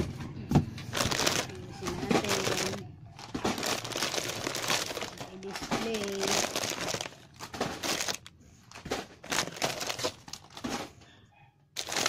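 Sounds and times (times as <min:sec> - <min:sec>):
plastic packets crinkling: 0:00.7 - 0:10.9, 0:11.8 - 0:12.0.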